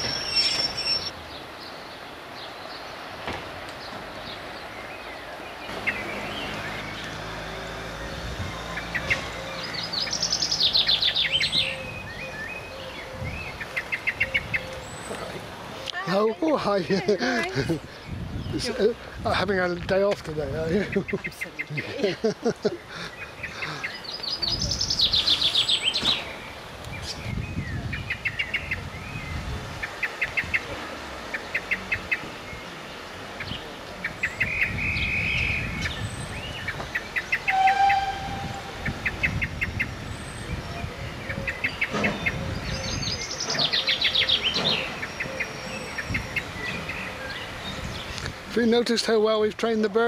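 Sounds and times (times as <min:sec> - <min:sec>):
bird trill sliding down: 0:00.0 - 0:01.1
small birds chirping: 0:00.0 - 0:50.0.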